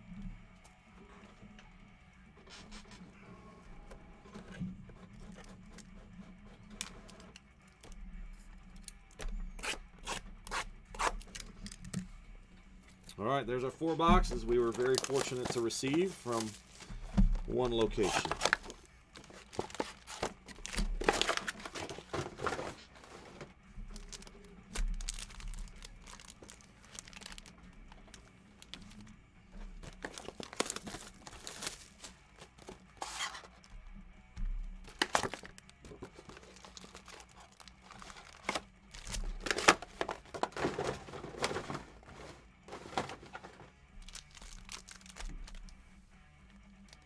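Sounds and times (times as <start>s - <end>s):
foil wrappers crinkling: 13.8s - 33.8s, 34.8s - 45.8s
cardboard boxes tearing open: 14.6s - 16.8s, 17.5s - 23.4s, 24.0s - 27.5s, 29.8s - 33.6s, 34.9s - 45.2s.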